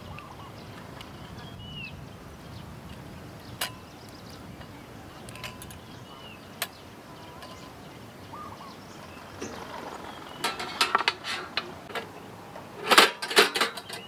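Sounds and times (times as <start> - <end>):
hard objects clattering and clinking: 9.3 - 12.1.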